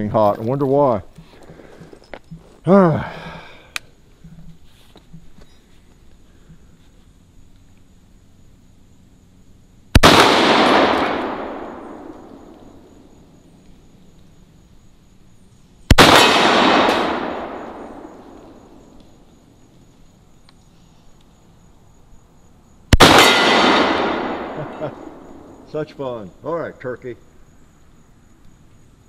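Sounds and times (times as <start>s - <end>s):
echo rolling off hillside: 5.8s - 29.0s
shotgun shots: 9.9s - 12.9s, 15.9s - 18.9s, 22.9s - 25.7s.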